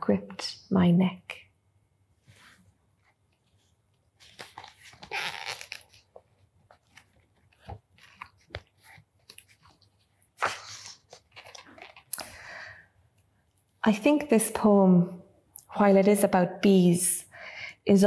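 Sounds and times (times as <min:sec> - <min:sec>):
book pages rustling: 0:02.2 - 0:12.1
pages turning ticks: 0:04.2 - 0:09.9, 0:10.9 - 0:12.3.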